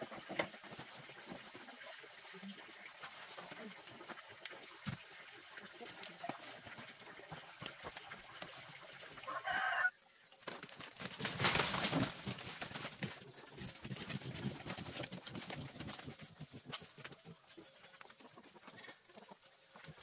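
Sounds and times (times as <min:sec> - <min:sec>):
dry husks rustling clatter: 0:10.4 - 0:20.0
chicken clucking: 0:11.3 - 0:20.0.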